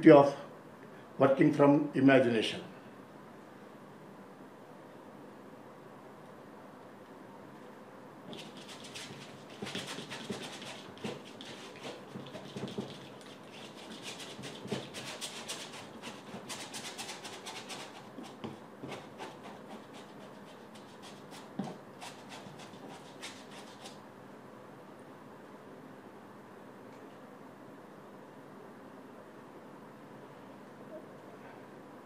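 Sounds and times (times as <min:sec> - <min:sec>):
bristle brush scrubbing canvas: 0:08.3 - 0:24.0.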